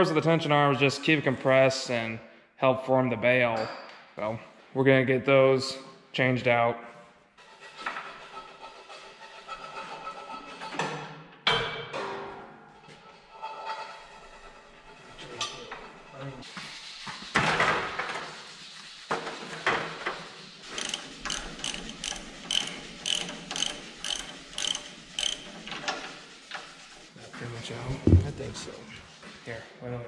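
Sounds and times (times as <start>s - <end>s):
ratchet wrench clicking: 20.7s - 25.5s
knocks: 27.9s - 28.7s.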